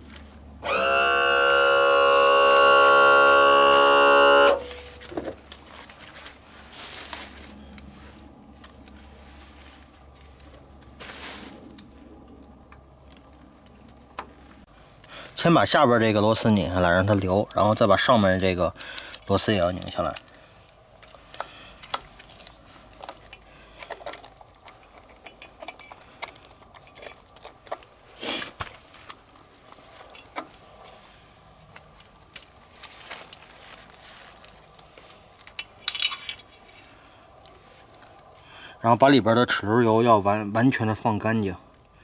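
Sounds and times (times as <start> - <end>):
loud held tone: 0.6 - 5.1
tool clicks and hand rustles: 17.1 - 30.6, 31.6 - 38.3
screwdriver clicks and metallic clinks: 21.0 - 27.9, 35.4 - 36.7.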